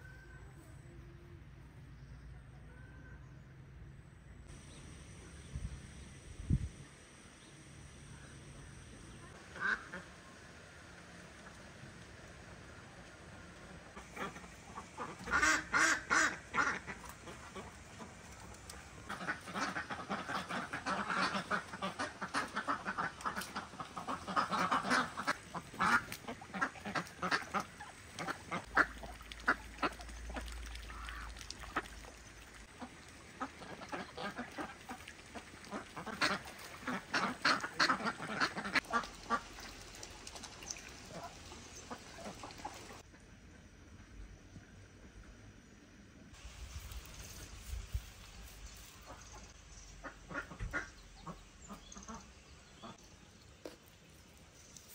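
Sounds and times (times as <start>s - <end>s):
ducks quacking: 9.3s - 10.4s, 13.6s - 40.1s, 41.0s - 43.0s, 49.0s - 53.0s.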